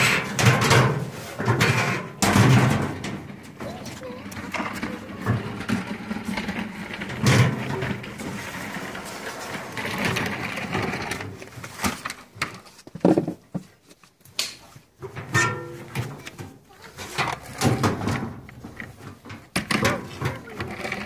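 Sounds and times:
sheet metal clattering: 0.0 - 3.8, 15.1 - 20.4.

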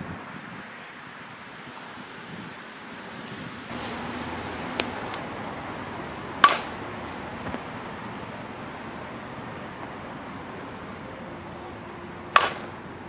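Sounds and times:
wind noise: 0.0 - 13.0
bat hitting ball ping: 6.3 - 6.8, 12.2 - 12.9.

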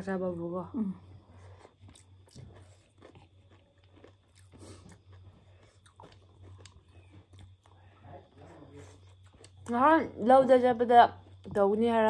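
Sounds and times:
steady low hum: 0.0 - 12.0
chewing: 1.0 - 10.2.

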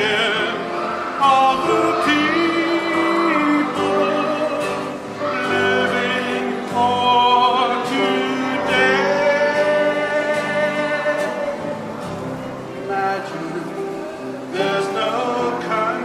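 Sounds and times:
vocal group singing: 0.0 - 16.0.

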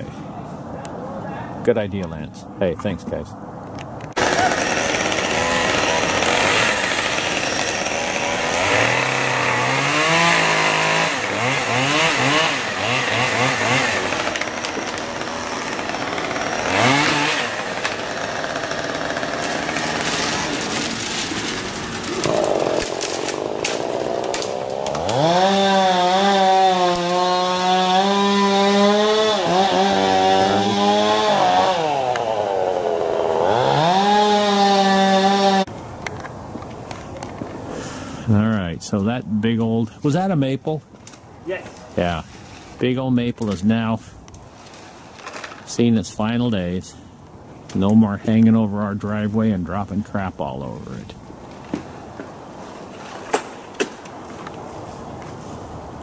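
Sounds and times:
chainsaw engine revving: 4.2 - 35.7.

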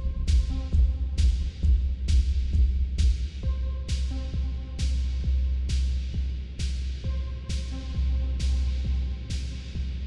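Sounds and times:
four-on-the-floor kick drum: 0.0 - 4.0.

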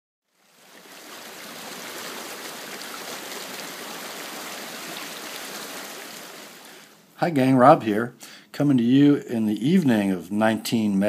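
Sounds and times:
creek water flowing: 0.3 - 7.2.

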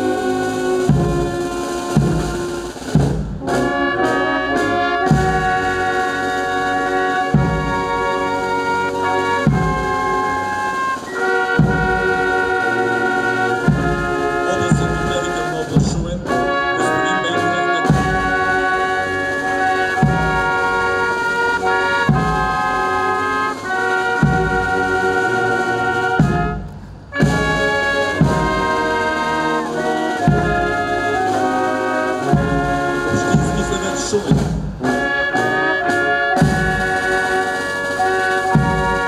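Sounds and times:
low drum beat: 0.0 - 4.0, 9.2 - 10.4, 11.2 - 37.2
brass band playing: 0.0 - 39.0.

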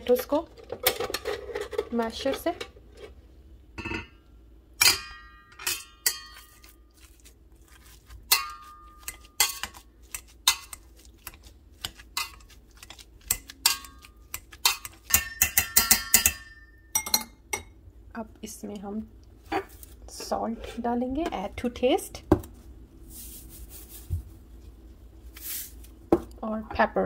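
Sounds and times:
potato masher clanking on metal pot: 8.3 - 10.8, 13.2 - 16.7.

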